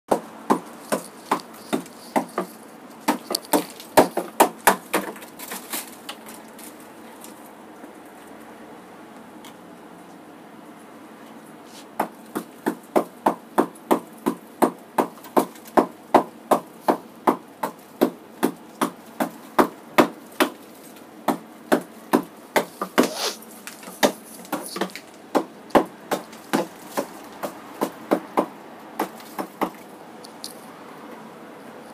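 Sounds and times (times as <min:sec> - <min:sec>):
hand tool chipping ice: 0:00.5 - 0:06.0, 0:22.6 - 0:25.0.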